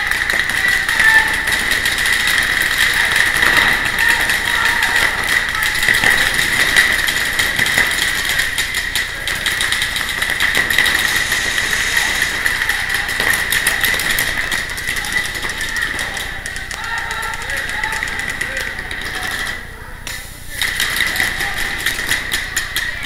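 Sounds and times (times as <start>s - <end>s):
steady high-pitched hum: 0.0s - 16.8s
paintball markers firing: 0.0s - 22.7s.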